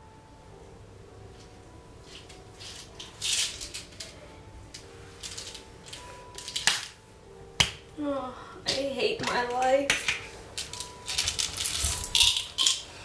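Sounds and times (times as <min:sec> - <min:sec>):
plastic pill bottle rattling: 0:10.6 - 0:12.8.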